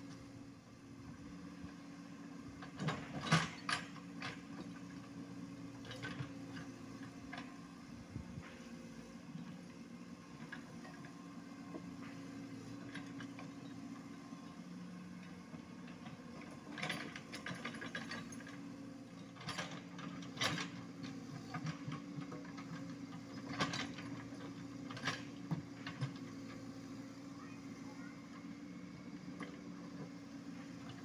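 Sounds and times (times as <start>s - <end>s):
excavator diesel engine running: 0.0s - 31.0s
machine clanking and rattling: 2.6s - 4.8s, 15.6s - 26.2s.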